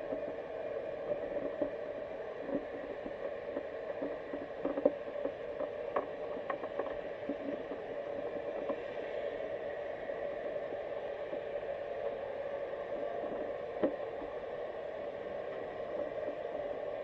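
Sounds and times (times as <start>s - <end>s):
muffled underwater hiss and hum: 0.0s - 17.0s.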